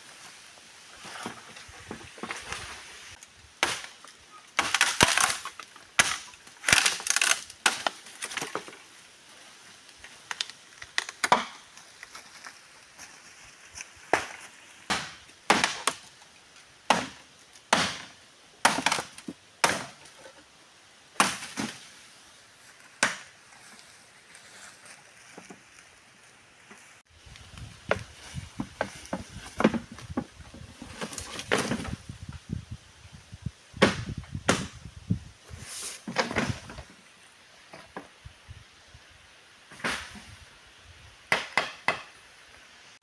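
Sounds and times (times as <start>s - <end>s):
dry bamboo and leaves crunching: 0.0s - 20.4s, 21.2s - 32.2s.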